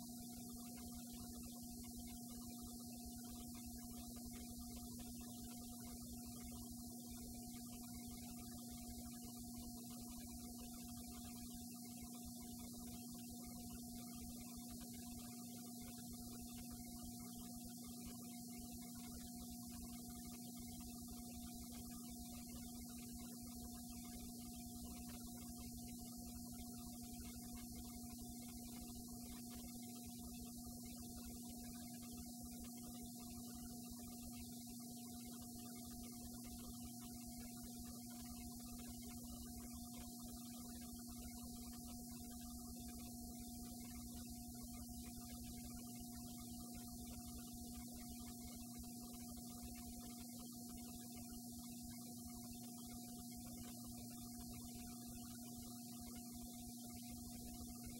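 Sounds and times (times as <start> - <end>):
two-tone electrical hum: 0.0 - 57.9.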